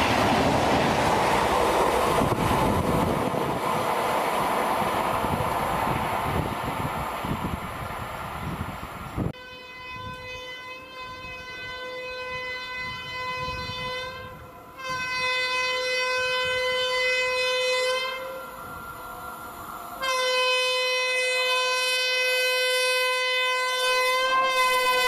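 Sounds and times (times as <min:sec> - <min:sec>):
locomotive air horn blasts: 0:09.3 - 0:18.8, 0:20.0 - 0:25.0.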